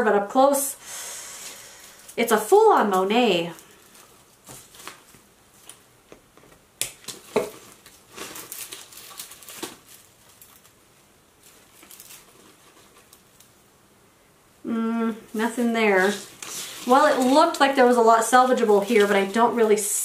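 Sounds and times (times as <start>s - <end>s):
dry leaves rustling: 7.5s - 10.7s, 11.4s - 13.2s.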